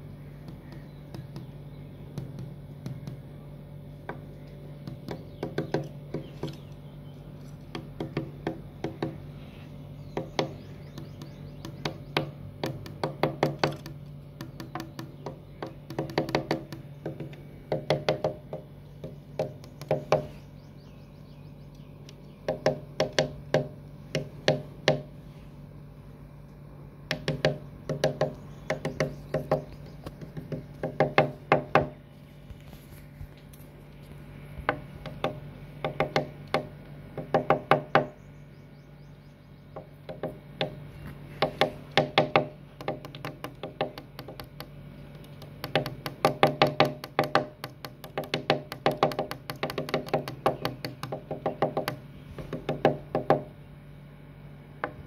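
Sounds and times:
knocking on window glass: 0:04.8 - 0:06.6, 0:07.7 - 0:09.2, 0:10.1 - 0:20.3, 0:22.5 - 0:25.1, 0:27.1 - 0:32.0, 0:34.6 - 0:38.2, 0:39.8 - 0:40.8, 0:41.4 - 0:44.8, 0:45.4 - 0:53.5.

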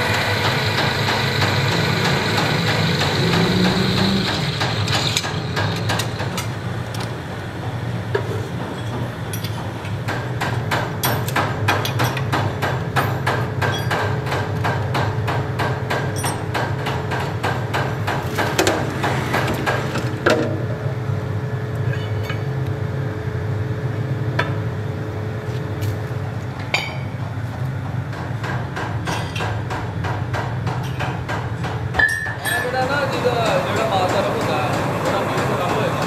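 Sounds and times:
drill press humming: 0:00.0 - 0:07.0.

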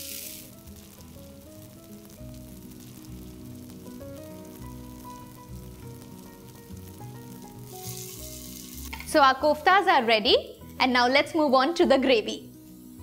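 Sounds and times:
food sizzling in oil: 0:00.0 - 0:13.0
gentle background music: 0:00.0 - 0:13.0.

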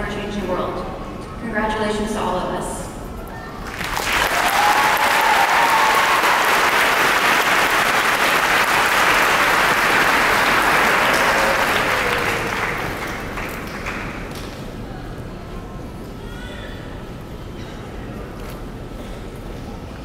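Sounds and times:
audience applauding: 0:03.6 - 0:14.6.

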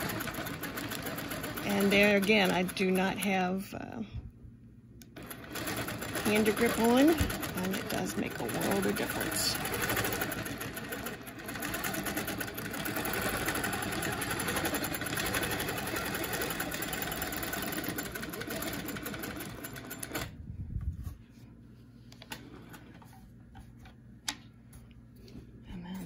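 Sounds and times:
quilting machine stitching: 0:00.0 - 0:03.3, 0:05.2 - 0:20.4.

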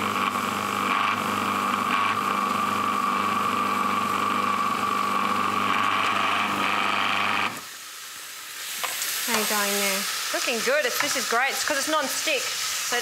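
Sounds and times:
food processor motor running: 0:00.0 - 0:07.7.

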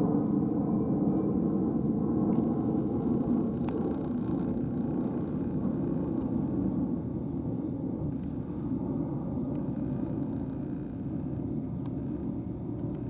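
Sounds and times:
low outdoor rumble: 0:00.0 - 0:13.0
faint clicks: 0:02.3 - 0:06.4, 0:09.5 - 0:13.0.

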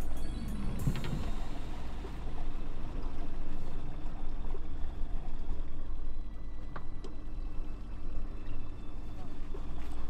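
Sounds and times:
wind rumbling on microphone: 0:00.0 - 0:04.0
water sloshing against hull: 0:00.0 - 0:10.0.

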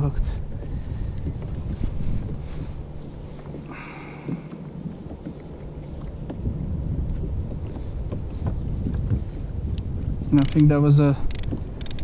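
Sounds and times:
wind buffeting microphone: 0:00.0 - 0:12.0
small clicks: 0:10.3 - 0:12.0.

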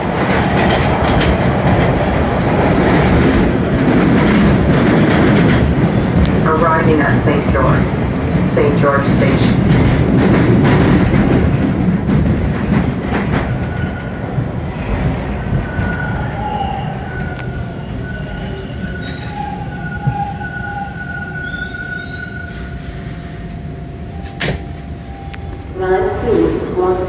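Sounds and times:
train wheels rumbling on track: 0:00.0 - 0:27.0
high brake squeals: 0:15.9 - 0:23.5.

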